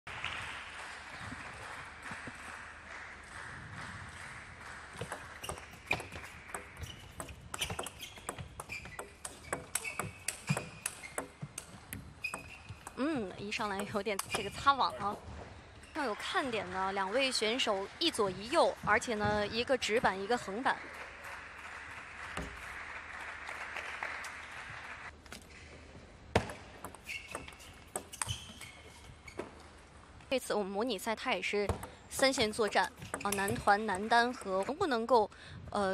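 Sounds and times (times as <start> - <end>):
table tennis ball hits: 5.0 - 13.0, 31.7 - 33.7
shoes squeaking on floor: 5.3 - 13.1, 26.9 - 29.8.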